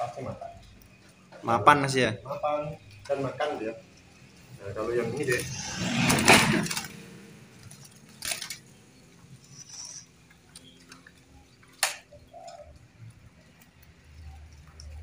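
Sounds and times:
dove cooing: 12.1s - 12.8s.

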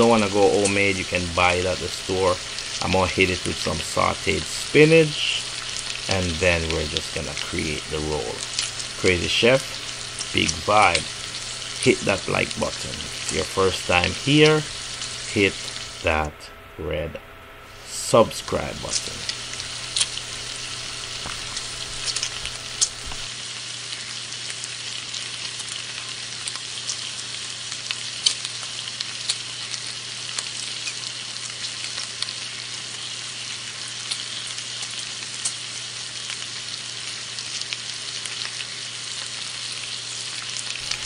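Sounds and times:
spinach sizzling in a skillet: 0.0s - 16.3s, 17.7s - 41.0s
low hum: 0.1s - 23.3s.

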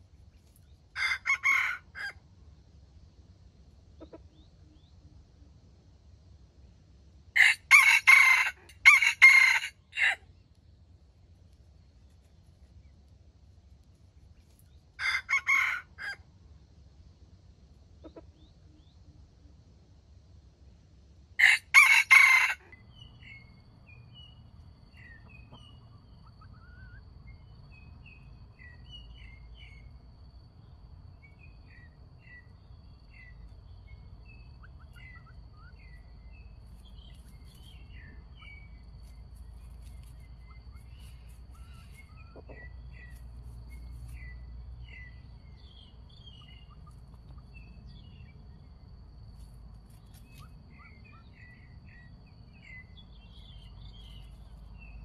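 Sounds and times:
rooster crowing: 1.0s - 2.2s, 7.4s - 10.2s, 15.0s - 16.2s, 21.4s - 22.8s
small birds chirping: 31.2s - 55.0s.

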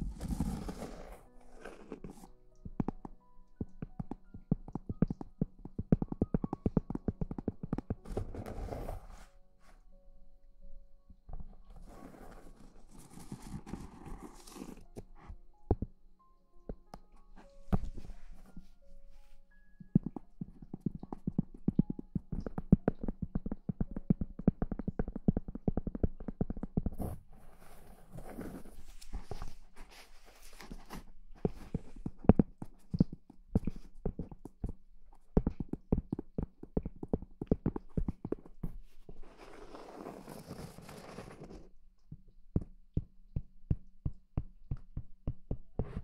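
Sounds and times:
fingertips tapping on wood: 1.8s - 8.4s, 19.7s - 27.2s, 30.6s - 39.3s, 40.4s - 46.0s.

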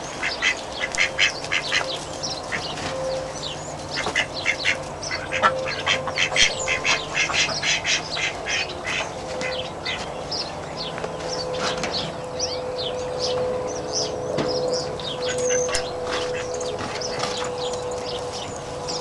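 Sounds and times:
ducks quacking: 0.2s - 10.5s, 15.1s - 19.0s.

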